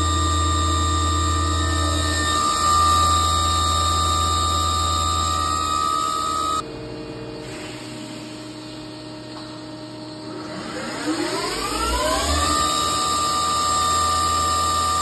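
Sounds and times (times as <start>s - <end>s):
machine spindle whine and hum: 0.0s - 15.0s.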